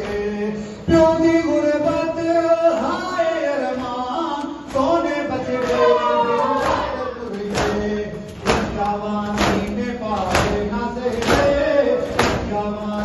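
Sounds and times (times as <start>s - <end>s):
men chanting a lament: 0.0s - 13.0s
hands slapping chests: 6.6s - 12.6s.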